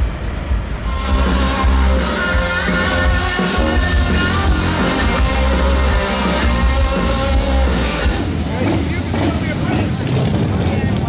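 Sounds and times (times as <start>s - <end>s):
loud steady bass: 0.0s - 11.0s
electric guitar: 0.8s - 8.4s.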